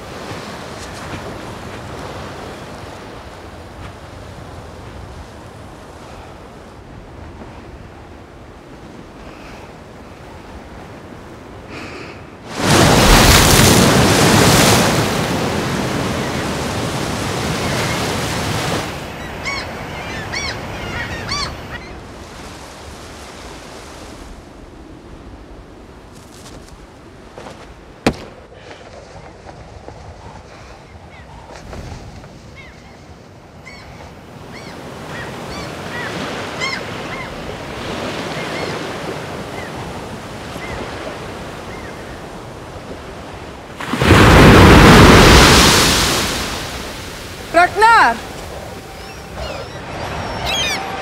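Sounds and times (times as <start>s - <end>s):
waves breaking on shore: 0.0s - 51.0s
birds calling: 15.9s - 23.2s, 32.5s - 43.3s, 46.3s - 51.0s.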